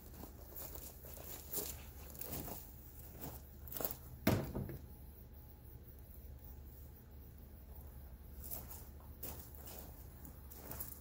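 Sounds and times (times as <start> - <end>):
footsteps on gravel: 0.0 - 4.2, 8.4 - 11.0
low steady hum: 0.0 - 11.0.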